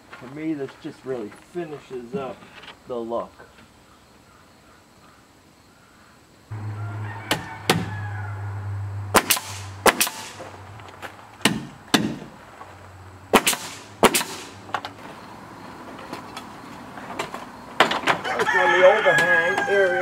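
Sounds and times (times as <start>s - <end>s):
low machine hum: 6.5s - 10.9s
nail gun firing: 9.1s - 10.5s, 11.4s - 12.2s, 13.3s - 14.6s.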